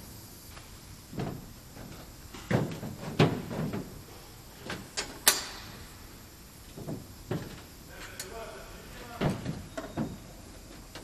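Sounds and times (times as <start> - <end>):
metal clunks and knocks: 1.2 - 4.0, 6.7 - 7.7, 9.2 - 11.0.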